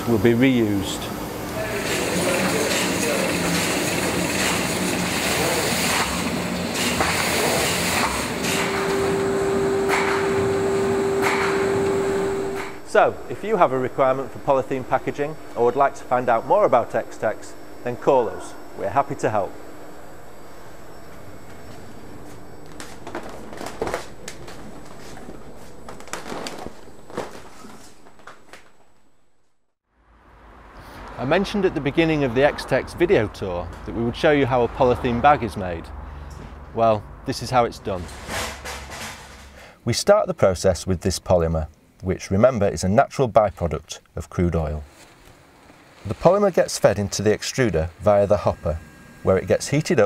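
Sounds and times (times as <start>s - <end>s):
machinery hissing din: 0.0s - 19.8s
steady hum: 0.0s - 29.8s, 31.3s - 50.0s
machine knocking: 1.8s - 12.8s
plastic strip curtain rustling: 22.8s - 28.7s.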